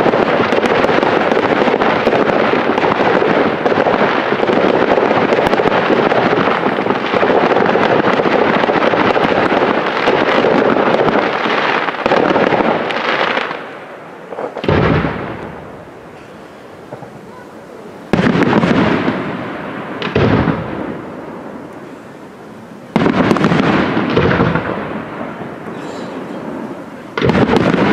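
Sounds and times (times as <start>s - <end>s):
fireworks bursts and crackling: 0.0s - 27.9s
loud firework bang: 14.4s - 17.4s, 18.1s - 21.1s, 22.9s - 27.9s.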